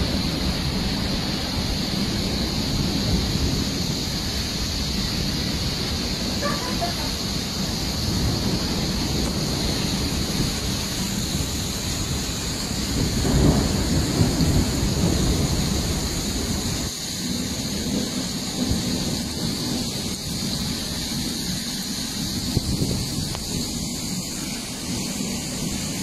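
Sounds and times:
rain hiss: 0:00.0 - 0:26.0
thunder rumbling: 0:00.0 - 0:26.0.

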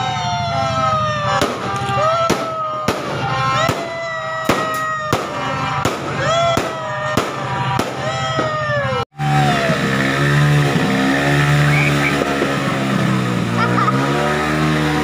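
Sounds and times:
fireworks bangs: 0:00.2 - 0:09.0, 0:11.7 - 0:12.7.

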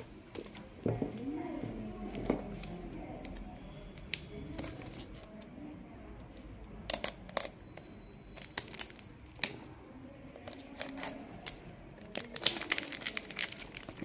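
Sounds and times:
plastic shrink-wrap crackling: 0:06.6 - 0:14.0.

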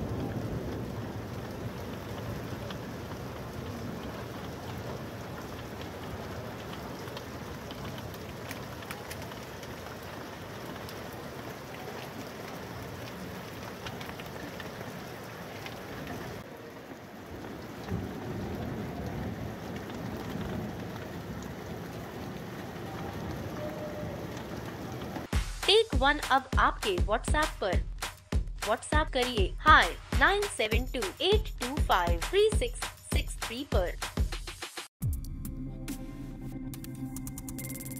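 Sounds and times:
rain and hail downpour: 0:00.0 - 0:27.8, 0:28.6 - 0:34.2
sharp taps of hailstones: 0:01.8 - 0:11.2.

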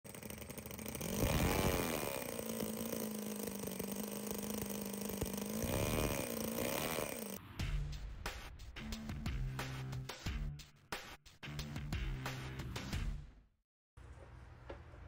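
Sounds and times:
model engine running and revving: 0:00.0 - 0:07.4.

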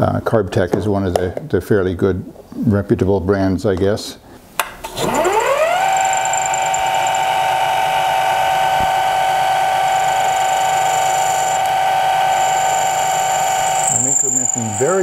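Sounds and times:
lathe motor whine: 0:04.9 - 0:15.0.

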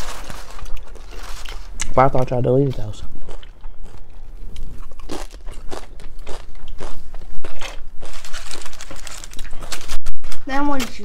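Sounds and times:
chewing crunchy chip: 0:02.8 - 0:10.0.

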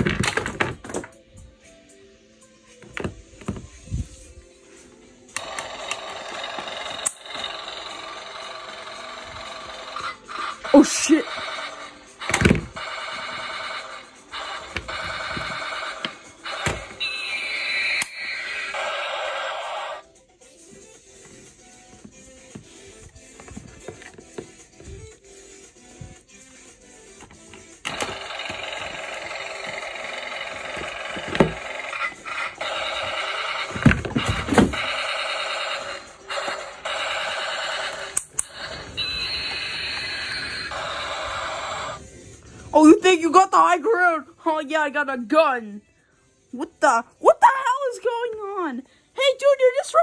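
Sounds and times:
toy electronic firing bursts: 0:05.4 - 0:20.0, 0:27.9 - 0:42.0.

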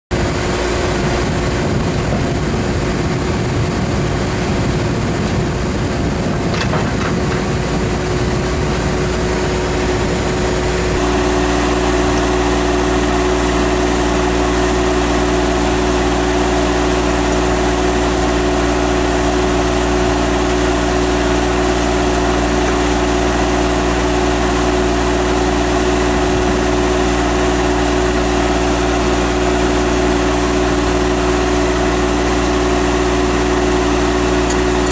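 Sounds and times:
engine idling: 0:00.2 - 0:34.9.

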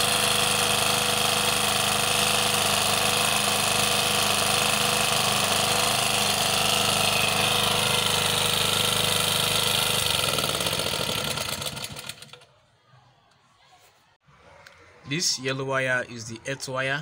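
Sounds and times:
petrol generator engine running: 0:00.0 - 0:12.5.

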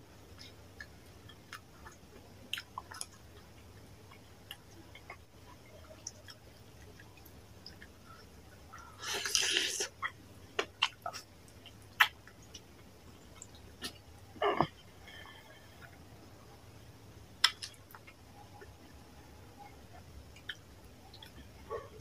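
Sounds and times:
wet chewing: 0:00.3 - 0:16.0
mouth clicks and smacks: 0:08.8 - 0:12.7, 0:17.4 - 0:19.0.

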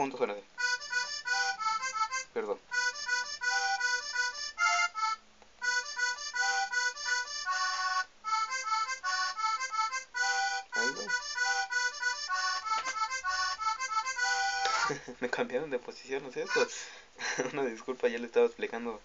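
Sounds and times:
synthesized accordion chords: 0:00.6 - 0:15.1, 0:16.4 - 0:17.0.

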